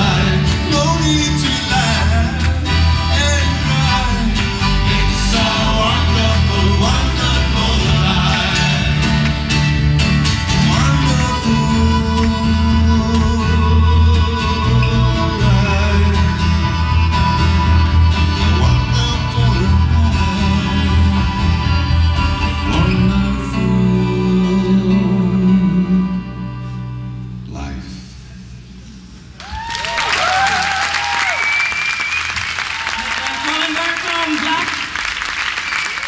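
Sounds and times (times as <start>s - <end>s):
strummed acoustic guitar: 0.0s - 27.5s
double bass notes: 0.0s - 29.4s
accordion held tone: 11.6s - 24.4s.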